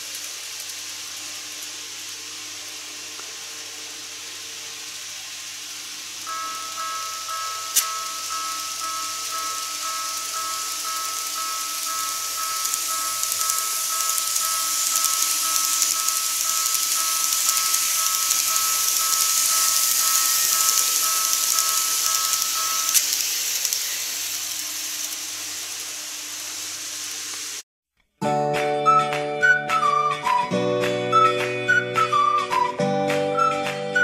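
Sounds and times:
model train whirring: 0.0 - 27.6, 31.1 - 32.7
music: 28.2 - 34.0.

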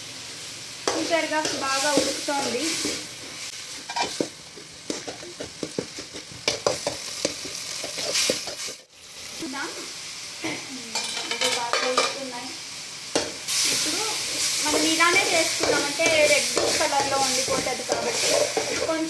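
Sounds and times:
tomatoes sizzling: 0.0 - 19.0
metal spoon scraping a pan: 0.8 - 3.1, 3.8 - 4.3, 4.9 - 8.8, 13.2 - 19.0.

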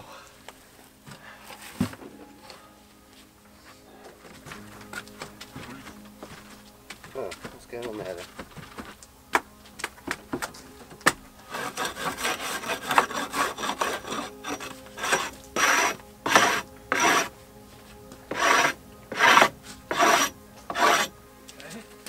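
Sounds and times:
hatchet scraping wooden slat: 11.5 - 17.3, 18.3 - 21.1.

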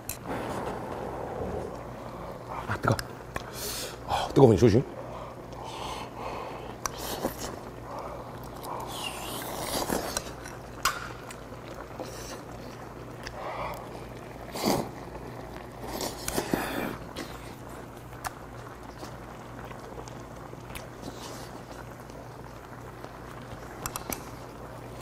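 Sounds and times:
blowing on hot food: 0.0 - 2.5, 5.6 - 10.4, 13.3 - 17.7
sucking food: 0.1 - 4.3, 5.0 - 25.0.

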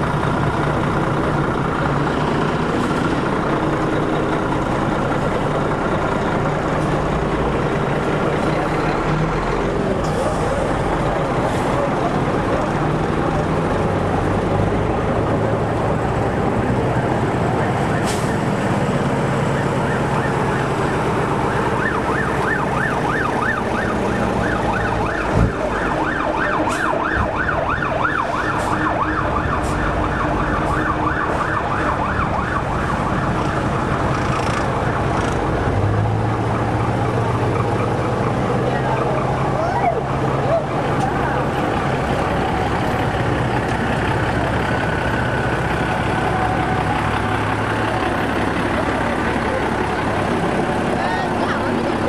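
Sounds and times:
lorry diesel engines: 0.0 - 52.0
warbling siren: 17.8 - 43.4.

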